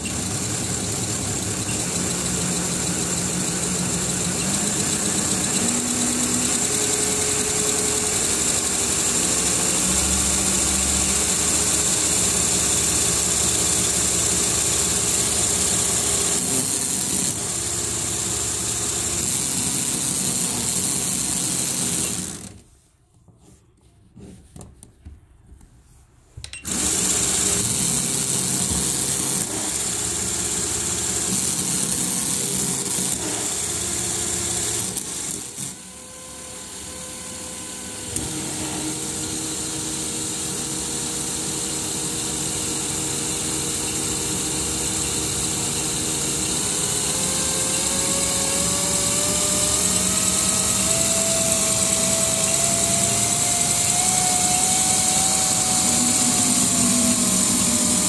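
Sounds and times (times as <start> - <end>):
electric motor whine: 0.0 - 16.6, 42.8 - 58.0.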